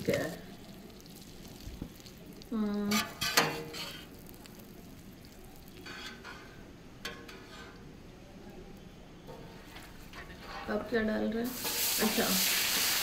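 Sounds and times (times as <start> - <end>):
chicken frying in hot oil: 0.0 - 6.6, 11.4 - 13.0.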